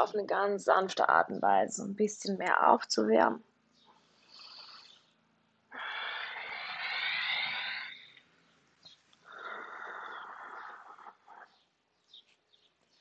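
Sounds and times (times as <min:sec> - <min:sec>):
person breathing deeply: 0:05.7 - 0:08.2, 0:09.2 - 0:11.4.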